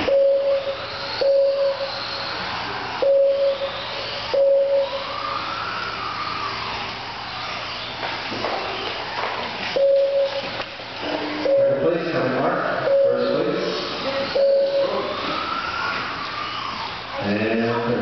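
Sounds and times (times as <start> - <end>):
short electronic beeps: 0.0 - 5.0, 9.8 - 10.6, 11.4 - 11.8, 12.9 - 13.4, 14.0 - 15.2.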